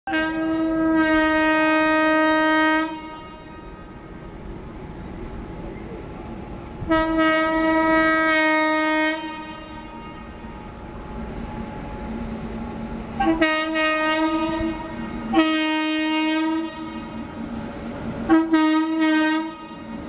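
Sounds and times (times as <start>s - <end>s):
locomotive air horn blasts: 0.1s - 3.9s, 6.9s - 10.5s, 13.2s - 17.4s, 18.3s - 20.0s.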